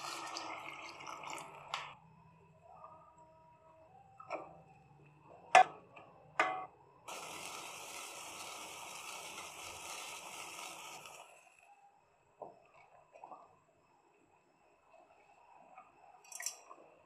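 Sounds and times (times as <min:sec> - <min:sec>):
gravy boiling: 0:00.0 - 0:02.1, 0:07.1 - 0:11.7
spoon knocking on steel pot: 0:06.4 - 0:06.7.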